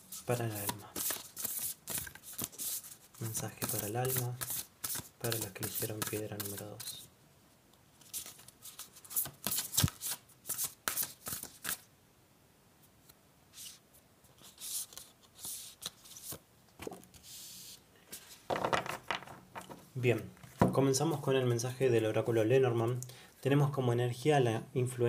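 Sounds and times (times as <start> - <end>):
cards shuffling: 0.2 - 7.0, 8.0 - 11.9, 13.6 - 19.8.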